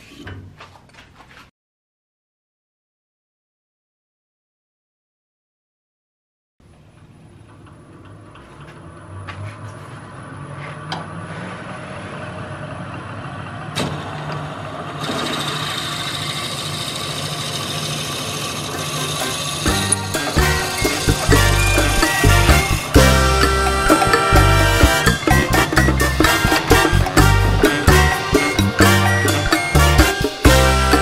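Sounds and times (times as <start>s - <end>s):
wood lathe motor hum: 14.3s - 25.8s
drill bit boring into wood: 15.0s - 21.4s.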